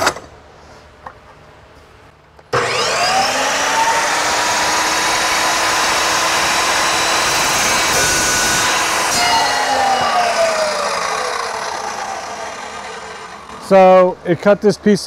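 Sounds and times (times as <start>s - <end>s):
chop saw motor whining: 2.5s - 14.0s
saw blade cutting metal rod: 2.6s - 13.7s.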